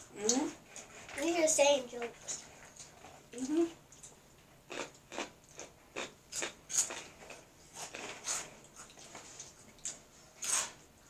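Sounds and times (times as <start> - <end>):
crunchy snacks being chewed: 4.0 - 9.2.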